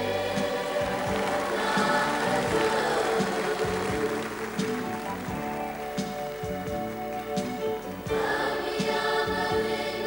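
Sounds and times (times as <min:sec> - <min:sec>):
group singing together: 0:00.0 - 0:04.5, 0:08.1 - 0:10.0.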